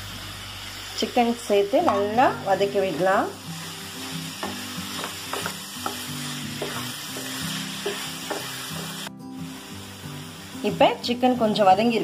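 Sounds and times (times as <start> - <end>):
chicken sizzling in hot oil: 0.0 - 12.0
spatula scraping frying pan: 2.7 - 9.1.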